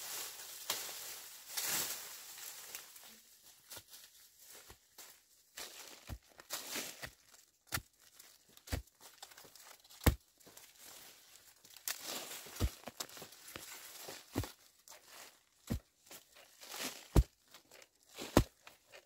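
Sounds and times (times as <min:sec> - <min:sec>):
dry leaves and brush rustling: 0:00.0 - 0:19.0
sharp knocks and thuds: 0:12.5 - 0:13.2.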